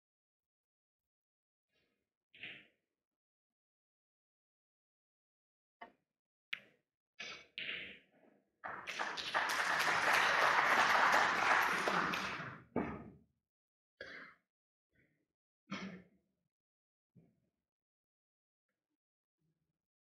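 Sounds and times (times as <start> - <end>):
audience applause: 8.7 - 12.6.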